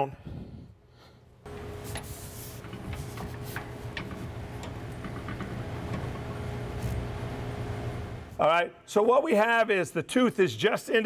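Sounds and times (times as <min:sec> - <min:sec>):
steady low hum: 0:00.1 - 0:08.4.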